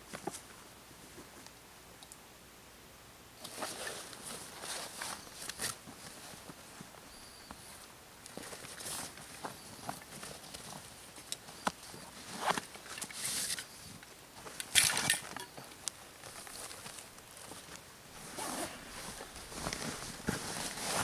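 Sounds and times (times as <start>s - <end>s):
backpack fabric rustling: 3.5s - 13.6s, 16.0s - 21.0s.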